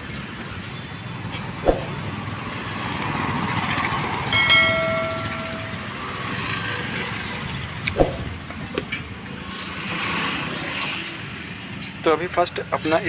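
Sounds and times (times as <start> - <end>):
highway traffic rumble: 0.0 - 13.0
metallic clang ringing: 4.2 - 6.0.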